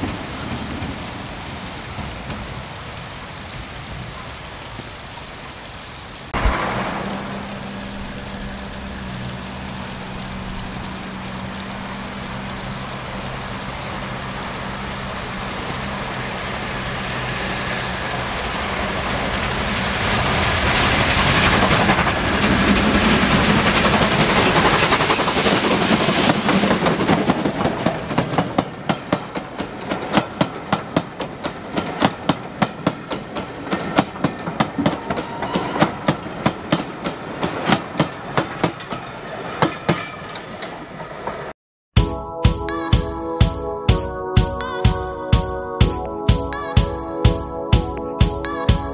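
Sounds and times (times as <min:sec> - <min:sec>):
steam locomotive passing: 0:00.0 - 0:04.8, 0:06.0 - 0:41.5
low steady drone: 0:06.4 - 0:22.1
carriage wheels clickety-clack: 0:19.1 - 0:41.5.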